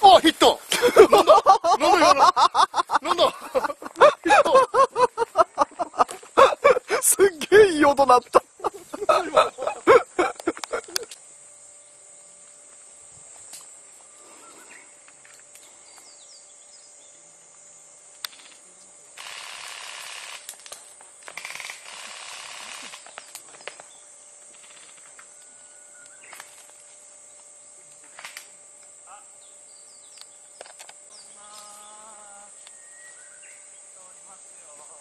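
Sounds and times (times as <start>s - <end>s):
insect buzz: 0.0s - 35.0s
bird chirps: 32.6s - 33.9s.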